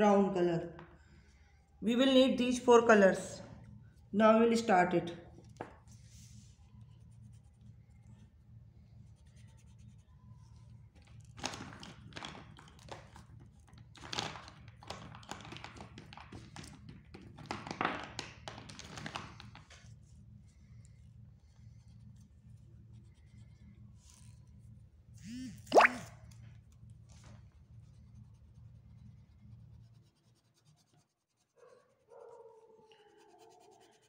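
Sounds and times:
faint low hum: 0.0s - 17.2s, 18.7s - 34.0s
crayon scratching on paper: 27.9s - 32.1s, 33.0s - 34.0s.

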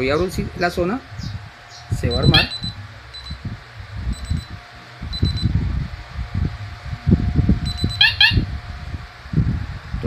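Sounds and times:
low rumbling noise: 0.0s - 10.0s
short high-pitched alarm beeps: 2.0s - 3.4s, 4.1s - 5.5s, 7.6s - 8.4s.

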